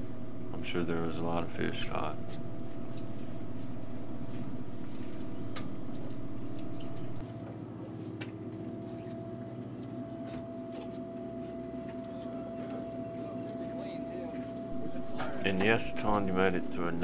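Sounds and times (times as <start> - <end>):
boat engine hum: 0.0 - 7.2, 14.7 - 17.0
faint clicks and knocks: 2.1 - 7.2.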